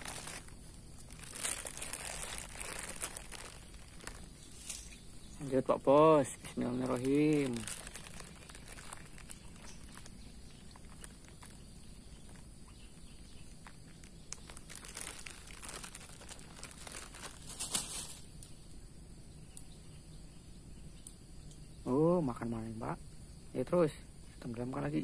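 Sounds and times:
faint high insect buzz: 0:00.0 - 0:25.0
rustling and crinkling clicks: 0:06.8 - 0:12.5, 0:13.4 - 0:18.2.

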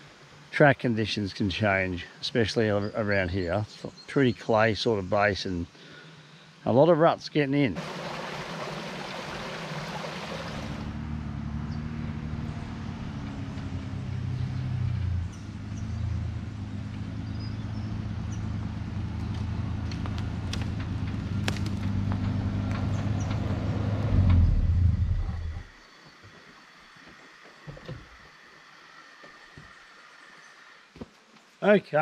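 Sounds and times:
vehicle engine running: 0:07.8 - 0:25.7.

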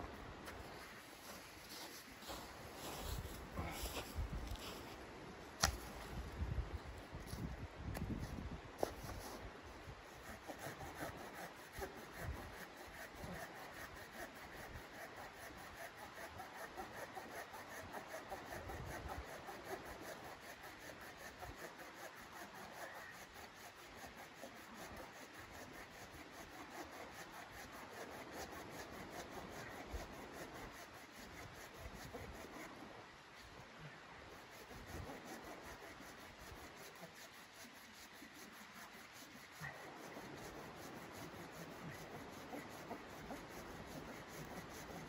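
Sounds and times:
hand saw cutting wood: 0:10.1 - 0:32.8, 0:34.3 - 0:45.0.

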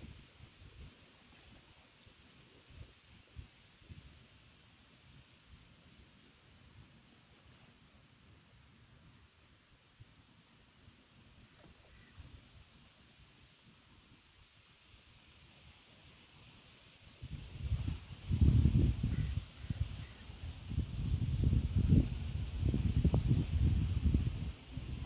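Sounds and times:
faint bird chirps: 0:00.0 - 0:09.4, 0:10.5 - 0:14.2
wind rumbling on microphone: 0:17.2 - 0:25.0.

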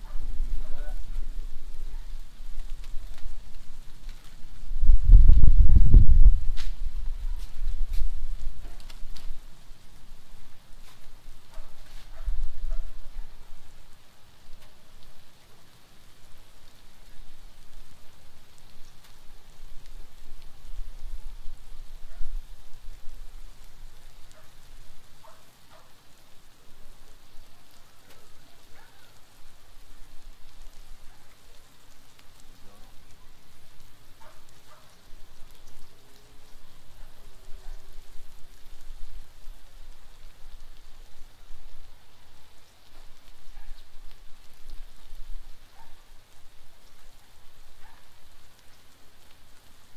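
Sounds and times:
fat crackling and popping: 0:00.0 - 0:49.9
food sizzling on a griddle: 0:00.0 - 0:49.9.

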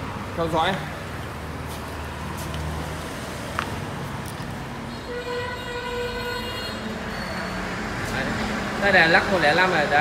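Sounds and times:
long steady horn tone: 0:04.9 - 0:07.5.

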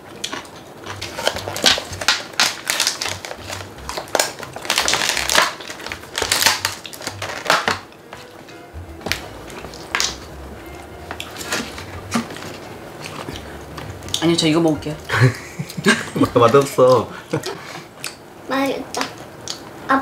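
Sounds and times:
plastic packaging crinkling: 0:00.3 - 0:08.4, 0:10.9 - 0:14.5.

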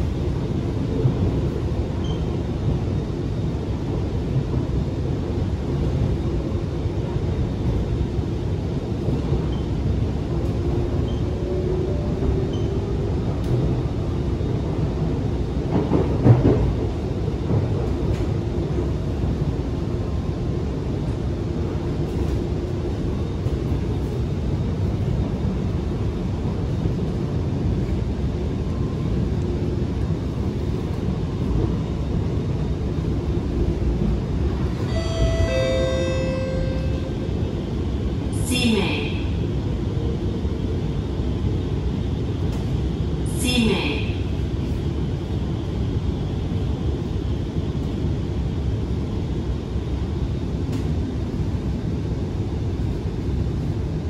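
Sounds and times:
metro train rumble: 0:00.0 - 0:54.0
electronic chime: 0:34.9 - 0:37.2.

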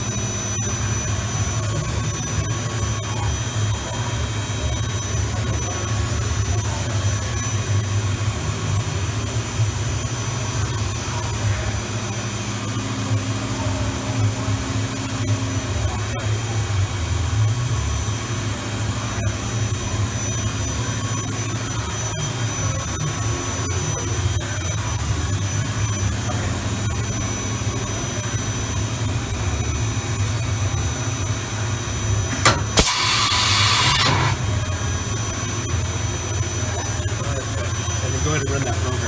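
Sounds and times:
machine hum: 0:08.2 - 0:39.0
faint high whine: 0:10.1 - 0:39.0.

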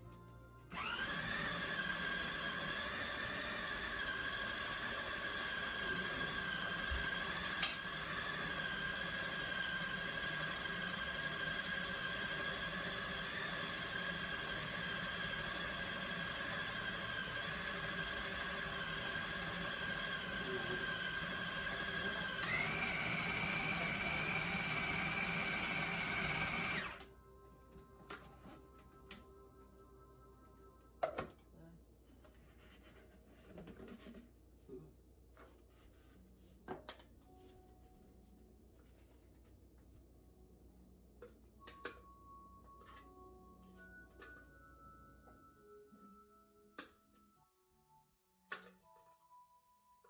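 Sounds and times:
food processor motor whining: 0:00.7 - 0:27.1.

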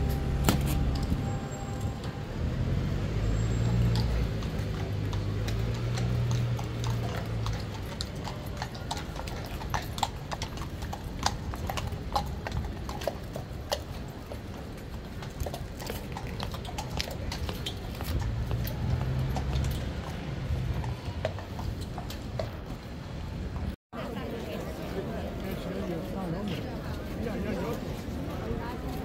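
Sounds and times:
hooves clip-clopping on stone: 0:03.5 - 0:23.8.

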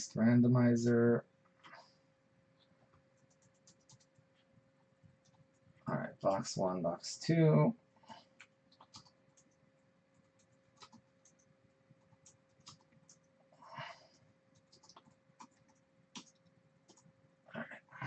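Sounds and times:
faint electrical hum: 0:00.0 - 0:18.0
computer keyboard and mouse clicks: 0:02.6 - 0:06.4, 0:08.4 - 0:13.3, 0:14.5 - 0:17.1.

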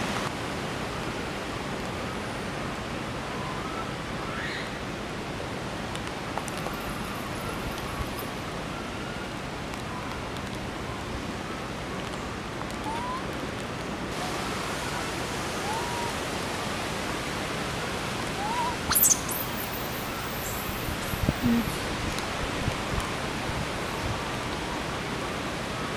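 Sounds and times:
steady outdoor hiss: 0:00.0 - 0:25.9
shrill high squeal: 0:18.4 - 0:20.7
faint chirping calls: 0:18.4 - 0:21.8.

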